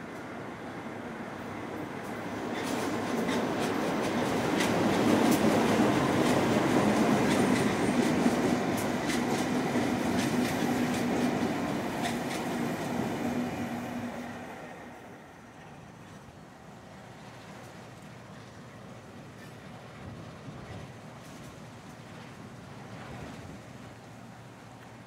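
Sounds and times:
diesel locomotive engine hum: 0.0s - 25.0s
train wheels running: 1.4s - 24.6s
wheels clicking on rails: 2.0s - 13.1s.

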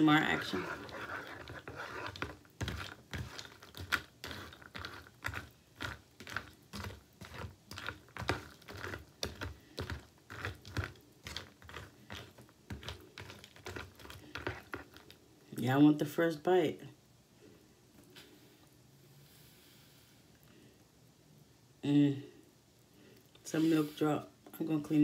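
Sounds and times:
spoon stirring crunchy cereal: 0.0s - 15.3s.

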